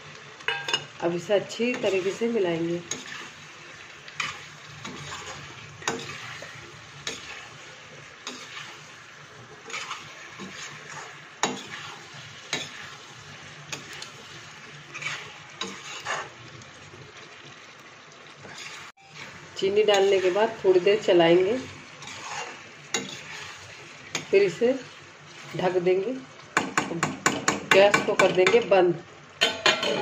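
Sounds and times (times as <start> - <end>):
low sizzle: 0.0 - 30.0
metal spatula scraping a pan: 1.5 - 16.4, 18.4 - 25.8.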